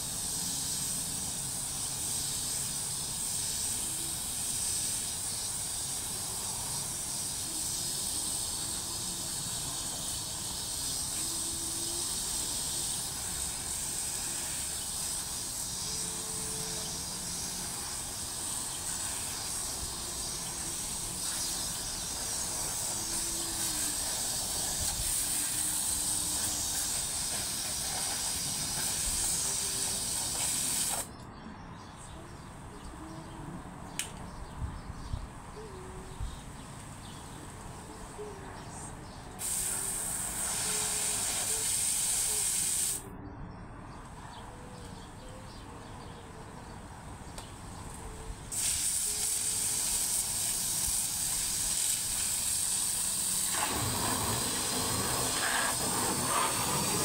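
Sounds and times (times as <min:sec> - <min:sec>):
hose spraying water on mesh: 0:00.0 - 0:31.1, 0:39.4 - 0:43.0, 0:48.5 - 0:57.0.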